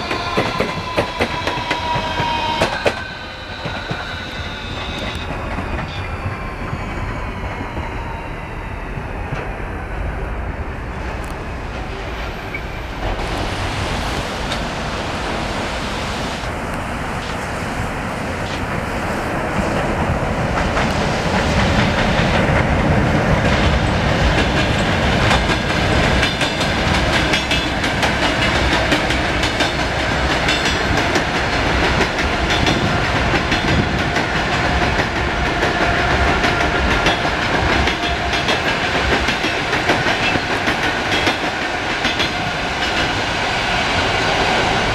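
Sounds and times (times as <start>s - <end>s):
electric train rumbling: 0.0s - 44.9s.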